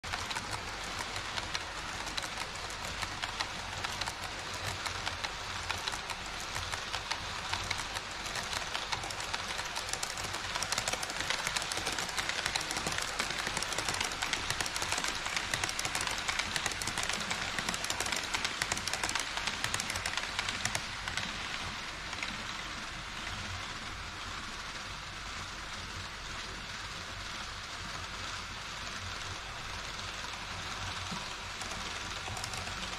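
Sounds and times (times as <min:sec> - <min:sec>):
rapid clicking of rail joints: 0:00.0 - 0:22.6
model train wheels rattling: 0:00.0 - 0:24.9, 0:27.8 - 0:32.9.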